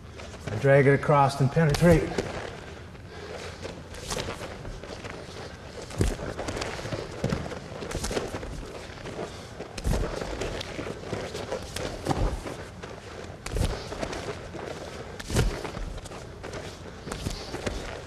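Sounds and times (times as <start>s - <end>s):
bare feet thudding on mats: 3.4s - 18.0s.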